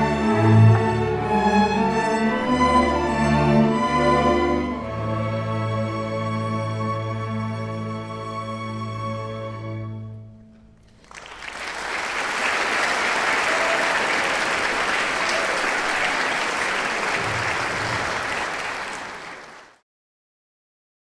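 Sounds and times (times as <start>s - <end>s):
audience applause: 10.8s - 19.8s.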